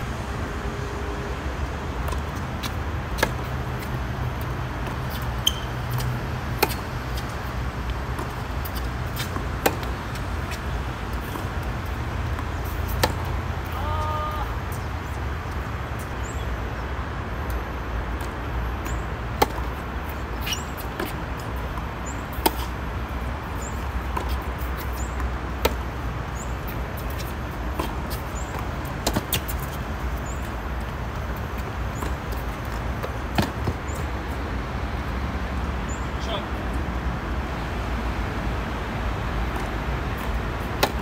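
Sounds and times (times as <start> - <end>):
low hum of road traffic: 0.0 - 41.0
tennis ball struck by rackets: 4.8 - 7.2, 8.1 - 10.6, 12.7 - 13.8, 19.4 - 19.7, 22.3 - 22.7, 27.0 - 29.8, 33.0 - 33.8, 39.5 - 41.0.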